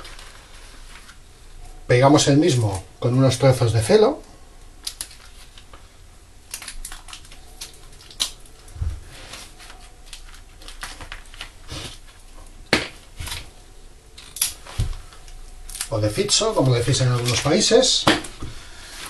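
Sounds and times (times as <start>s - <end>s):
newspaper crackling: 6.9s - 12.3s.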